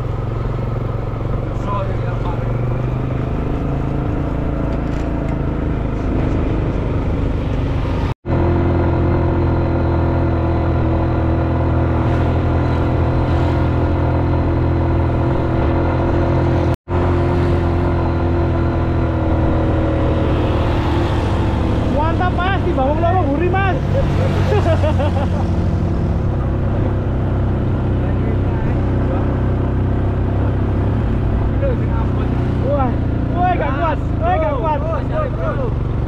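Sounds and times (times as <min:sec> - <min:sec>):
motor vehicle engine running: 0:00.0 - 0:36.0.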